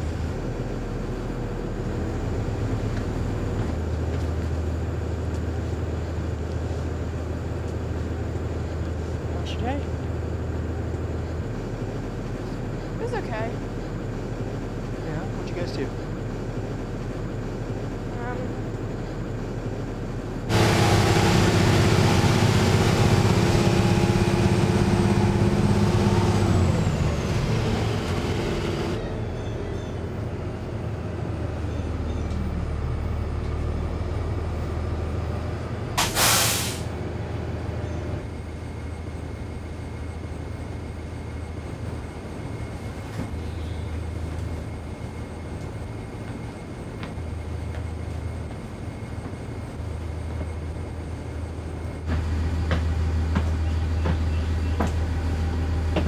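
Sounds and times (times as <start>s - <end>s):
bus engine rumbling: 0.0s - 56.0s
air brake hiss: 36.0s - 36.9s.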